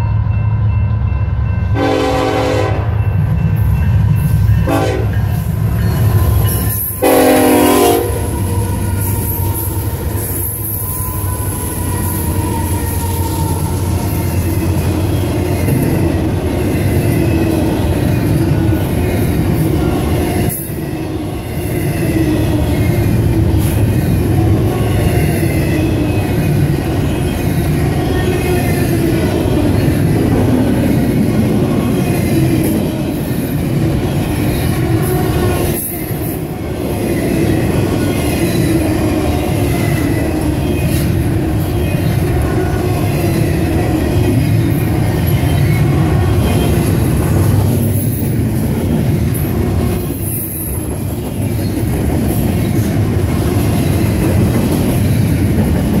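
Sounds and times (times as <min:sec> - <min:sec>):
freight train rolling past: 0:00.0 - 0:56.0
faint high wheel squeal: 0:08.3 - 0:15.8.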